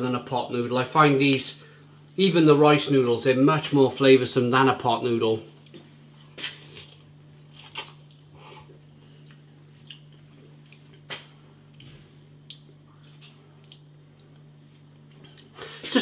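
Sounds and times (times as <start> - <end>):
low steady hum: 0.0 - 16.0
person chewing: 6.4 - 15.8
wet mouth clicks: 9.3 - 12.7.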